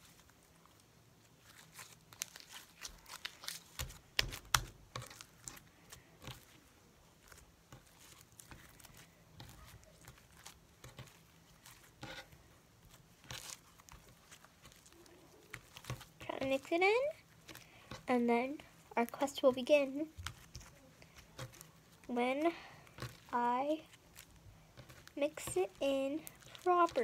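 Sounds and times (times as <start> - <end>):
slime popping and crackling: 1.4 - 6.6, 7.2 - 18.1.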